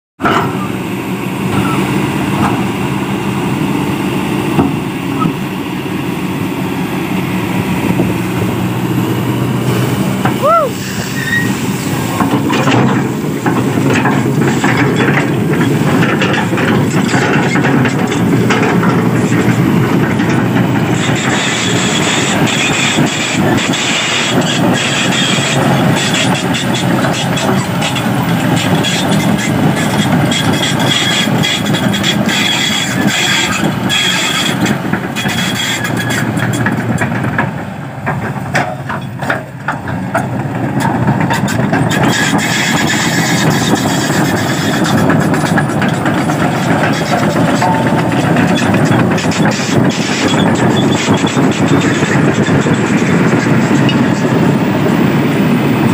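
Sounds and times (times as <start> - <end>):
excavator diesel engine running: 0.2 - 55.9
metal clanks and rattles: 11.8 - 54.5.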